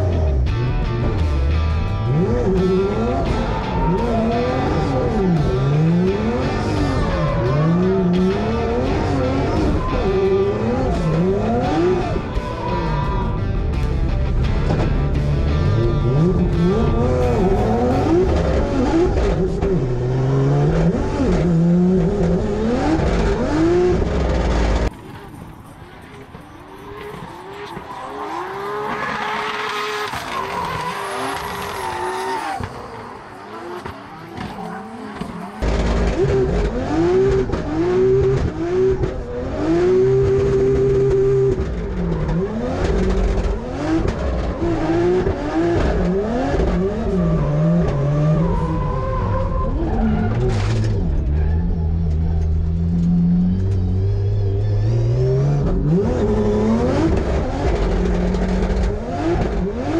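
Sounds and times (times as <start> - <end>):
car engine revving: 0.0 - 59.9
tyre squeal: 26.7 - 35.6.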